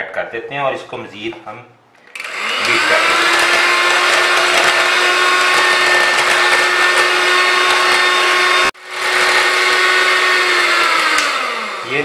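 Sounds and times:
electric hand mixer whisking: 0:02.1 - 0:12.0.

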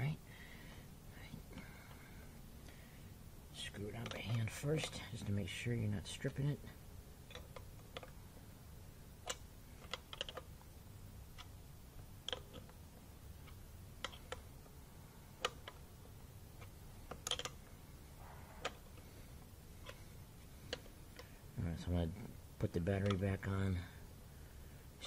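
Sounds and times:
wrench clicking on nut: 0:09.2 - 0:10.4, 0:12.3 - 0:12.7, 0:16.6 - 0:17.6.

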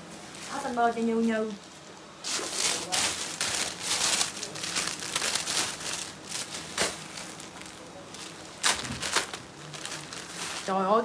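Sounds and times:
plastic bag crinkling: 0:00.2 - 0:11.0.

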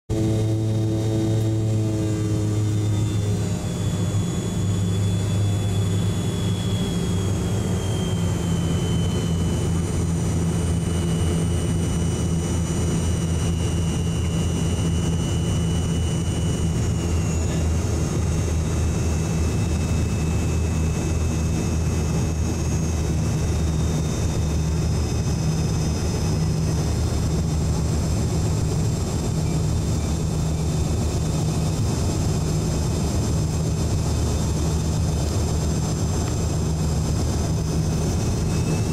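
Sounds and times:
high engine whines: 0:00.1 - 0:38.9
jet engine drone: 0:00.1 - 0:38.9.

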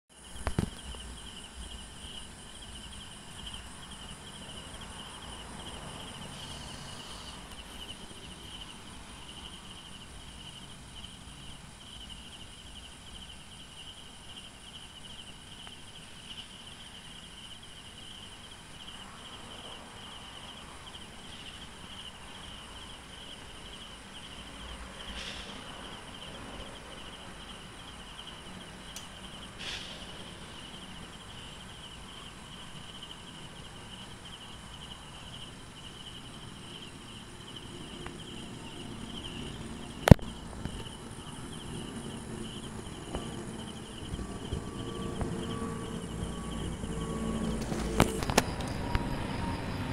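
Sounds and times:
night insects trilling: 0:00.1 - 0:49.9
faint low rumble: 0:37.6 - 0:49.9.

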